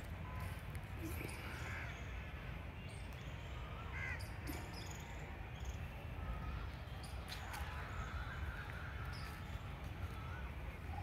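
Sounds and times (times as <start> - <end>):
crows cawing: 3.9 - 4.2.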